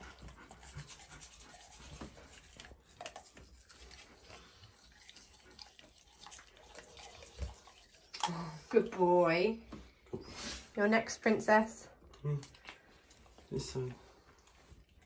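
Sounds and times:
toothbrush scrubbing teeth: 0.0 - 9.1.

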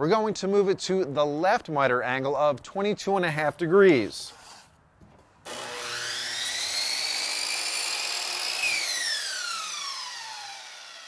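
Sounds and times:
saw blade cutting molding: 5.4 - 11.0
miter saw whining: 5.5 - 11.0.

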